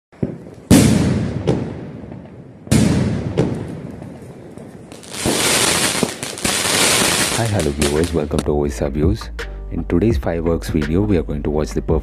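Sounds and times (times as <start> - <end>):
dense firework crackling: 0.2 - 8.4
firework shells bursting: 0.2 - 8.4.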